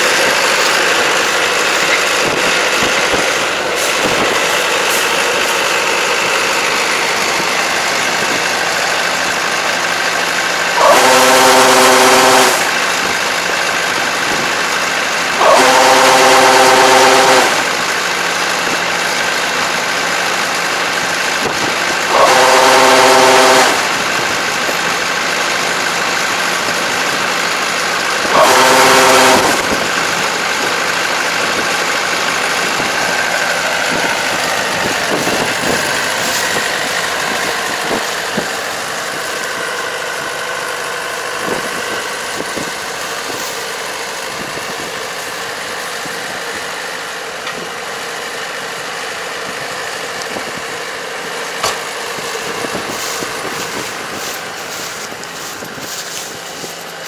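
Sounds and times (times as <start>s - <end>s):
diesel engine running: 0.0s - 57.0s
grain unloading through auger: 0.0s - 57.0s
loud horn tone: 10.7s - 12.9s, 15.4s - 17.9s, 22.1s - 24.3s, 28.2s - 30.0s.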